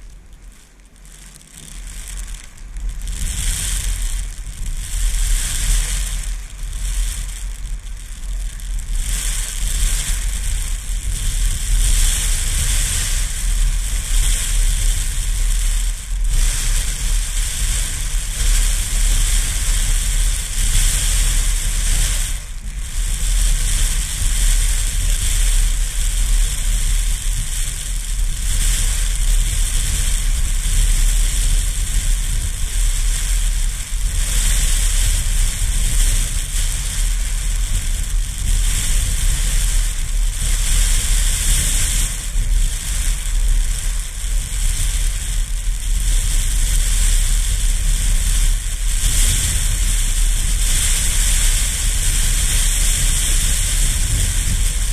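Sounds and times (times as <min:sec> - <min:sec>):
gusty wind buffeting microphone: 0:01.7 - 0:54.9.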